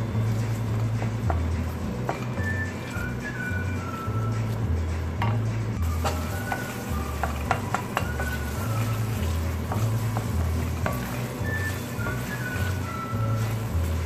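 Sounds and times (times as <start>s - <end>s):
gravy sizzling: 0.0s - 14.0s
spatula scraping in a pan: 5.8s - 14.0s
spatula knocking against pan: 6.0s - 8.4s, 9.6s - 11.2s.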